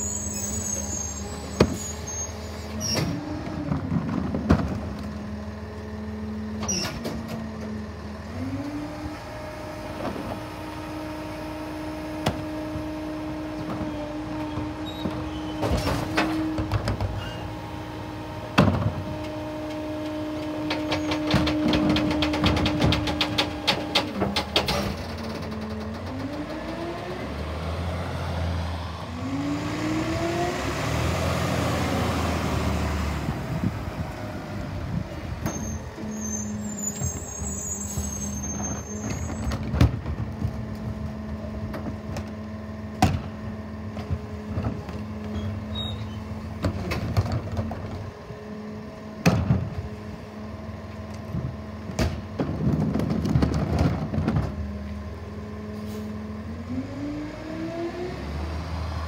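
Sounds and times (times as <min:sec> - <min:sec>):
truck idling: 0:00.0 - 0:52.6
garbage truck packer running: 0:00.0 - 0:59.0
truck engine revving: 0:16.0 - 0:37.5
carts banging against hopper: 0:18.5 - 0:27.0.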